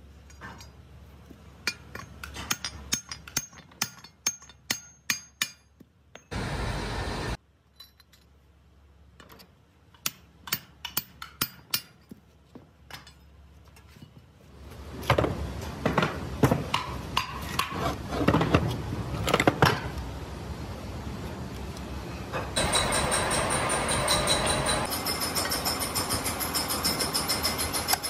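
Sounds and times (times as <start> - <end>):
metal parts clinking and knocking: 1.6 - 6.3, 7.6 - 8.4, 9.2 - 12.2.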